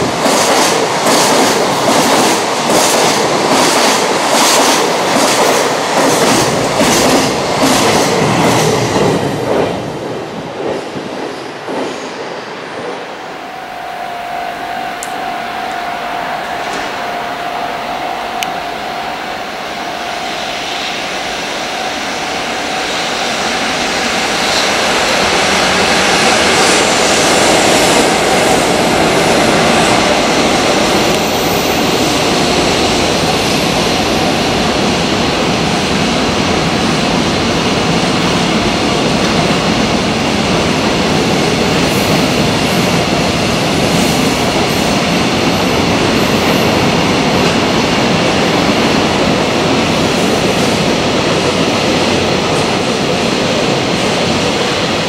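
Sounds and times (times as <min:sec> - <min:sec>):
train rolling noise: 0:00.0 - 0:55.0
steady high tone: 0:12.0 - 0:36.8.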